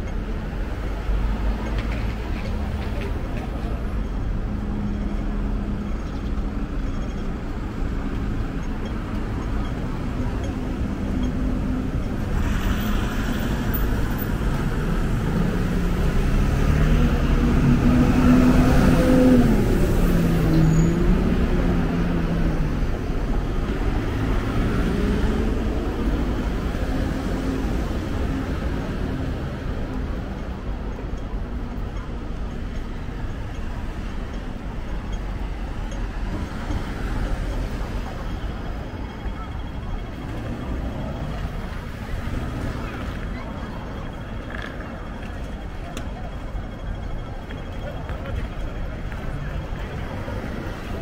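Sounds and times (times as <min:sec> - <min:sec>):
low hum of road traffic: 0:00.0 - 0:51.0.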